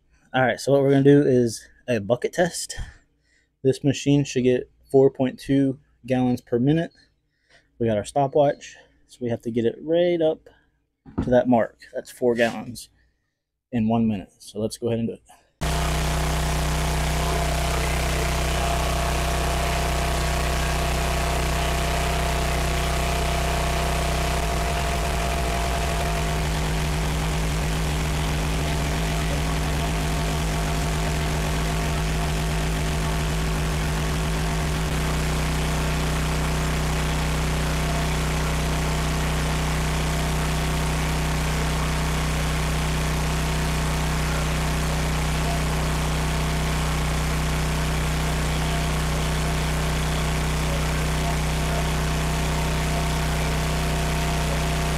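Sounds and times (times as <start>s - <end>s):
gas engine running: 15.6s - 54.9s.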